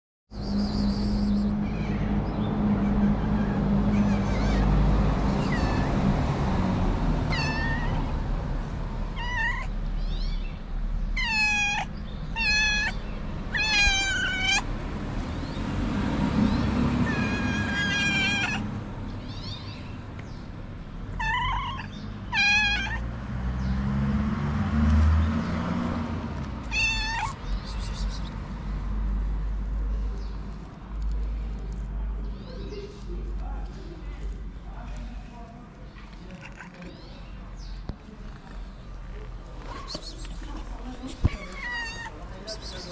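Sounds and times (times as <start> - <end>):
cat meowing: 2.7 - 6.0, 7.3 - 8.2, 9.1 - 14.7, 17.0 - 19.9, 21.2 - 23.1, 26.6 - 28.1, 36.3 - 37.3, 41.2 - 42.3.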